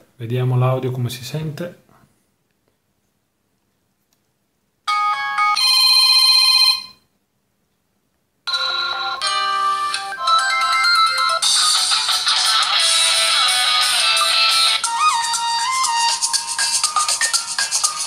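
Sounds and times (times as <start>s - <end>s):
phone ringtones playing: 4.9s - 7.1s, 8.5s - 18.0s.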